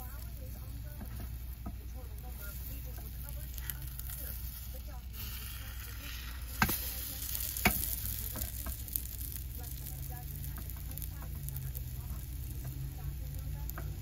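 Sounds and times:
pancake sizzling in frying pan: 0.0 - 14.0
spatula ticks: 5.2 - 14.0
pan and spatula knocking: 6.5 - 6.8, 7.6 - 8.9.

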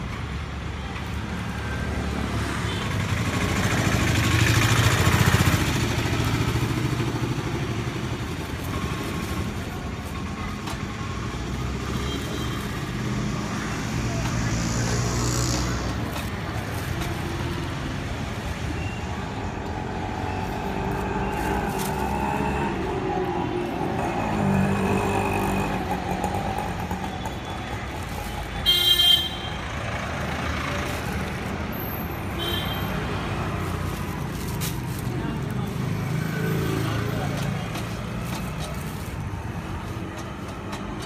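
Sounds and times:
street traffic noise: 0.0 - 41.0
vehicle horn toot: 28.6 - 29.6.

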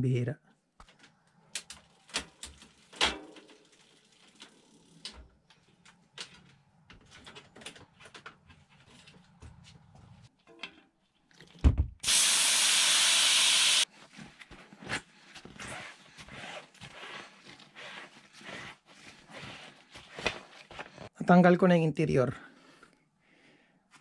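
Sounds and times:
air hissing from inner tube: 12.0 - 13.8.

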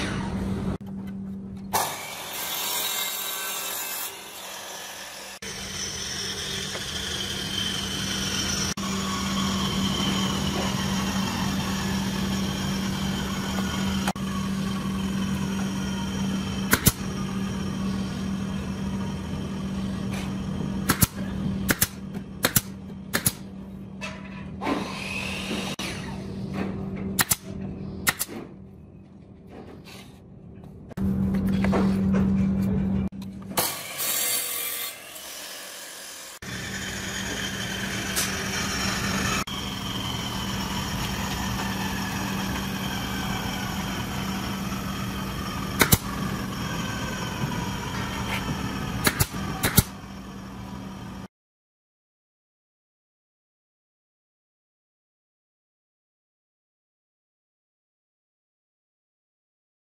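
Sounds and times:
power tool running on wood: 1.7 - 21.6, 33.6 - 51.3.

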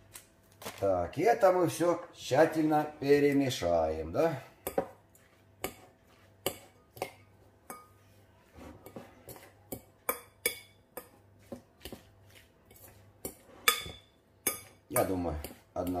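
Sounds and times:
fork clinking against glass bowl: 12.7 - 15.7.

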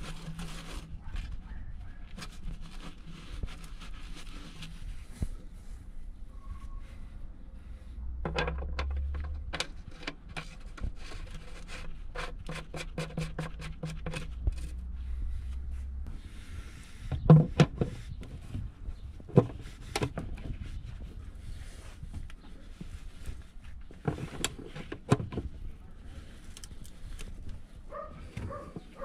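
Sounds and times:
sharp clicks and knocks: 8.2 - 10.9.

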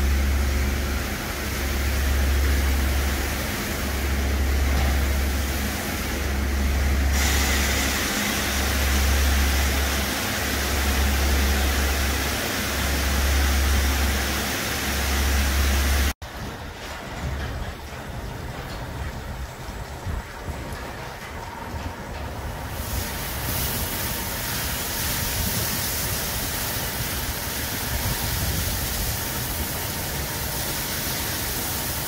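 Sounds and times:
water spraying: 0.0 - 16.2, 22.7 - 32.0.

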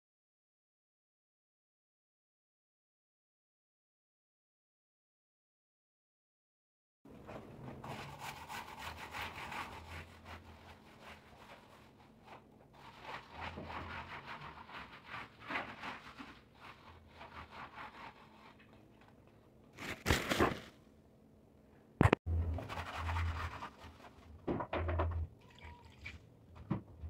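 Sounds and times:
broom scrubbing wet tiled floor: 7.3 - 18.7, 22.6 - 24.3.

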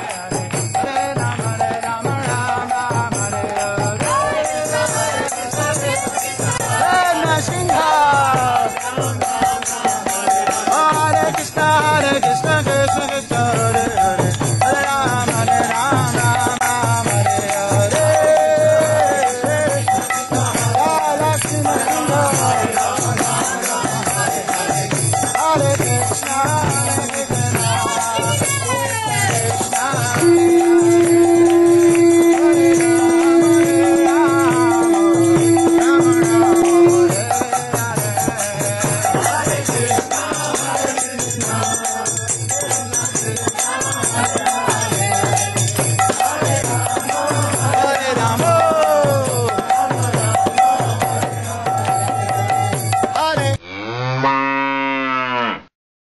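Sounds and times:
group chanting: 0.0 - 52.8
rattling percussion: 0.0 - 53.6
hand drum playing: 23.2 - 40.8
conch shell blown: 30.1 - 37.2.

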